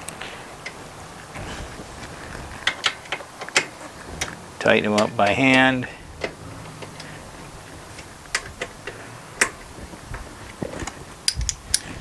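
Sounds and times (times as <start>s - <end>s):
metallic clicks of bolts: 11.2s - 11.9s.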